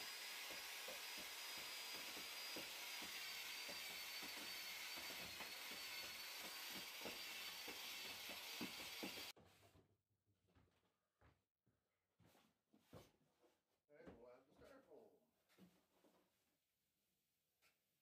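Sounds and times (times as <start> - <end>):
drill motor whine: 0.0 - 9.3.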